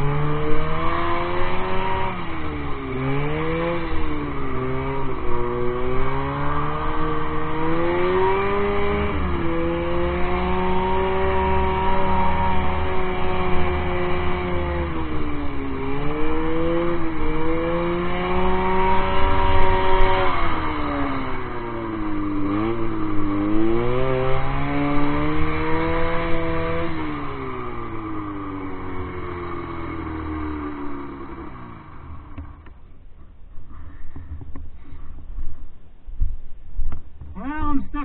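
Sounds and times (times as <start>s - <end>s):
snowmobile engine revving: 0.0s - 32.7s.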